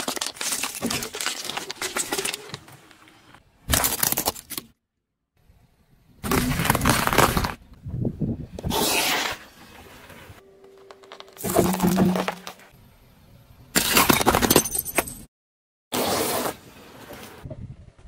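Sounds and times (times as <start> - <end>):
hard candy cracking: 0.0 - 2.6
tyre crushing objects on asphalt: 6.2 - 7.6, 11.1 - 12.7.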